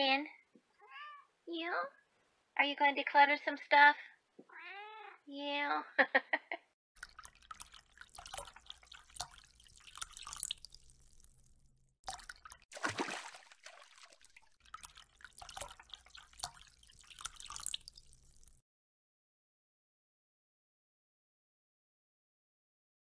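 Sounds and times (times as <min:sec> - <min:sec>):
water drips and bubbly plinks: 0:07.0 - 0:18.6
water splash: 0:07.0 - 0:18.6.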